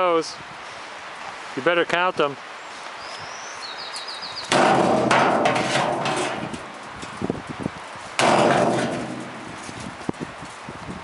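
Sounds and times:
sledgehammer striking metal tub: 4.5 - 7.1, 8.2 - 9.8
tub clattering and ringing: 4.5 - 7.1, 8.2 - 9.8.

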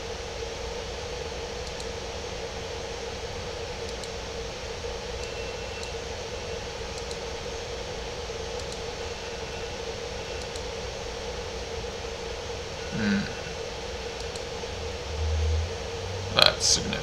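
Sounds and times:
constant low hum: 0.0 - 17.0
steady background hiss: 0.0 - 17.0
faint ticks: 7.0 - 7.2, 8.5 - 8.9.

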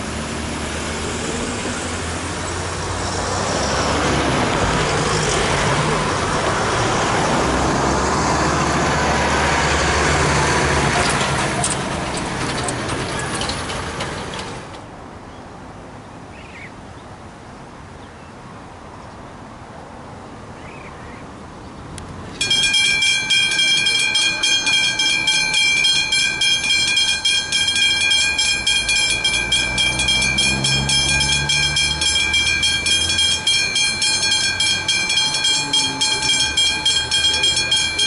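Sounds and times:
car driving past: 0.0 - 13.7, 24.4 - 38.0
truck driving past: 0.0 - 14.8, 22.4 - 38.0
outdoor background: 0.0 - 38.0.

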